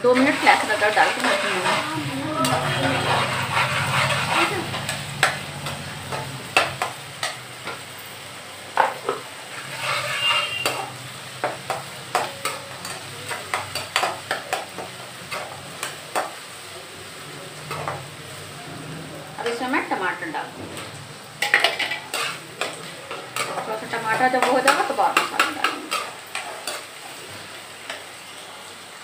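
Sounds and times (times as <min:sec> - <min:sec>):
steel spoon scraping metal pan: 0:00.0 - 0:07.8, 0:09.5 - 0:16.3, 0:21.4 - 0:26.9
frying oil sizzling: 0:00.0 - 0:29.0.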